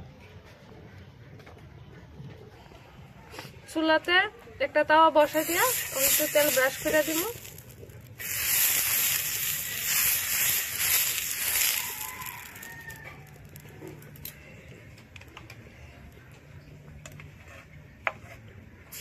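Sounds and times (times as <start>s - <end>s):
oil sizzling on griddle: 5.2s - 13.6s.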